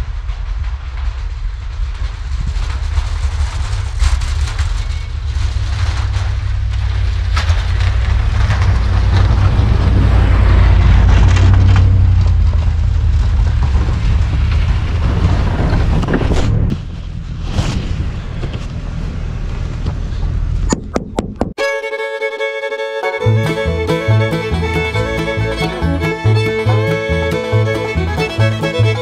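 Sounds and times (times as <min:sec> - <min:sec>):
snowplow truck engine rumble: 0:00.0 - 0:29.0
plow blade throwing snow: 0:03.0 - 0:19.1, 0:23.2 - 0:29.0.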